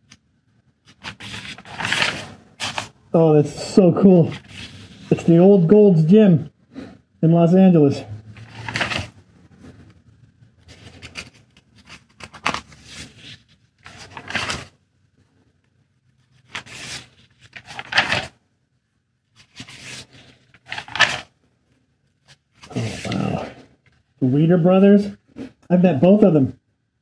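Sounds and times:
magazine pages rustling: 0.9s - 3.0s, 4.2s - 5.3s, 8.4s - 9.6s, 10.6s - 14.7s, 16.3s - 18.4s, 19.4s - 21.3s, 22.2s - 24.0s.

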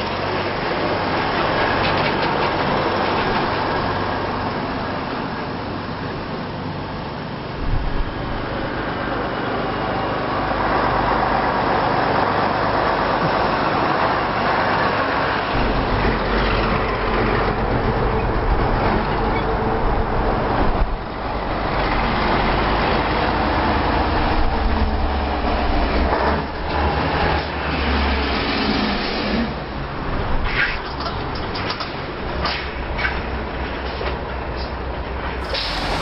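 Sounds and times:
trucks driving past: 35.3s - 36.0s.

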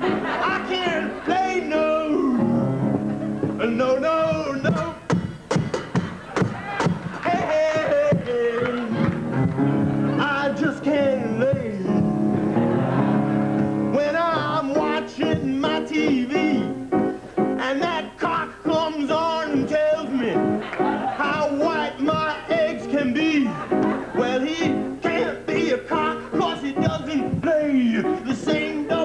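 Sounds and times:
rock and roll song: 0.0s - 29.0s
man singing: 0.2s - 2.6s, 3.5s - 5.4s, 7.2s - 9.2s, 10.0s - 12.2s, 13.9s - 16.9s, 17.6s - 29.0s.

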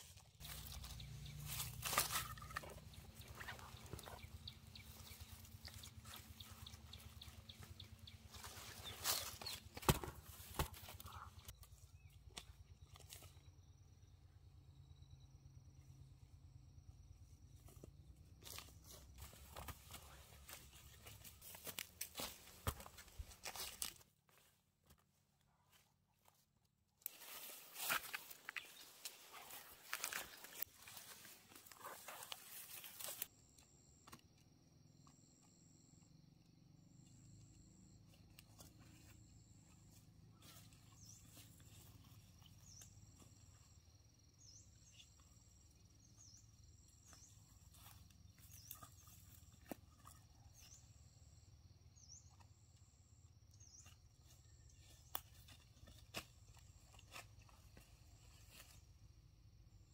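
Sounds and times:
crunching rustle: 27.1s - 33.3s.

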